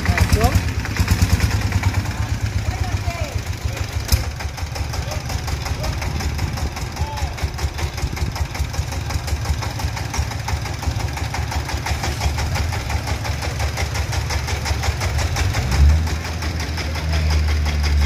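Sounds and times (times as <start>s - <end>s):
diesel engine idling: 0.0s - 18.0s.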